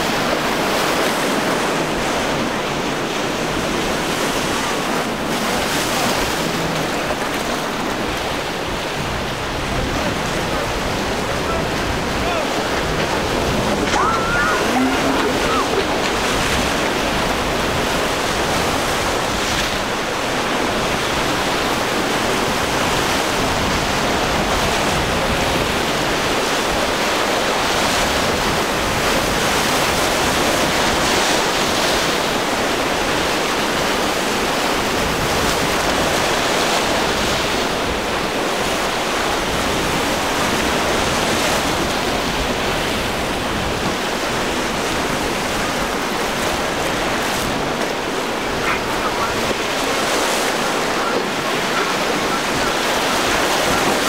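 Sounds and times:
waves breaking: 0.0 - 54.0
wind blowing: 3.4 - 26.2, 42.4 - 54.0.

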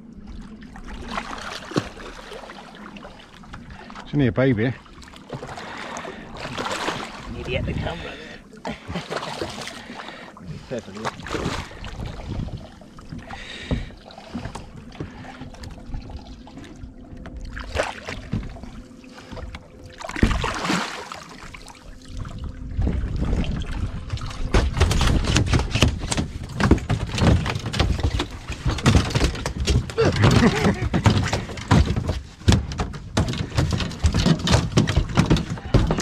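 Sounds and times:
thumps on boat deck: 11.0 - 15.6, 19.3 - 20.6, 24.4 - 36.0
shark splashing in water: 20.0 - 21.7.

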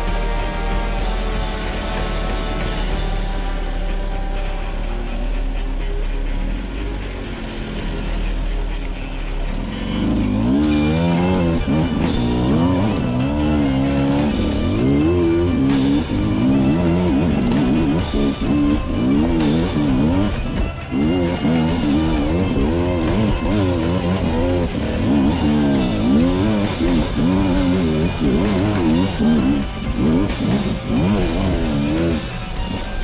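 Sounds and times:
dirt bike engine revving: 9.0 - 33.0.

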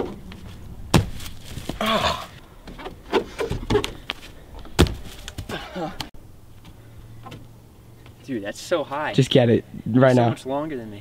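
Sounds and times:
dull thumps and knocks: 0.9 - 1.8, 2.6 - 5.5.

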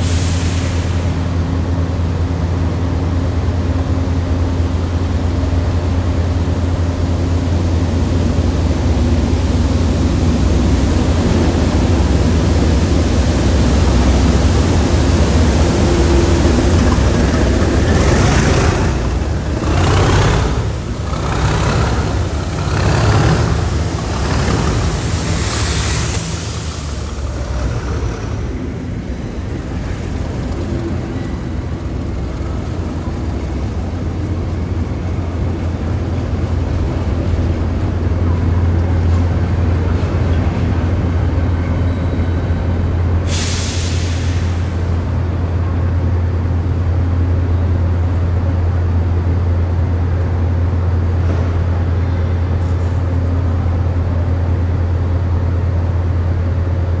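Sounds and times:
diesel locomotive engines throbbing: 0.0 - 57.0
burst of hiss: 22.3 - 28.6, 43.3 - 44.8.

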